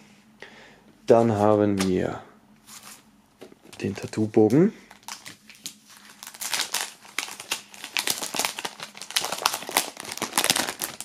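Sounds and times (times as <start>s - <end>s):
plastic sleeve crinkling: 3.6s - 11.0s.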